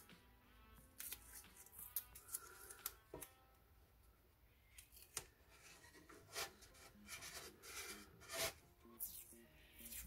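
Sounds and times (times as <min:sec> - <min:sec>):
tape rubbing scratchily: 0:05.5 - 0:10.0.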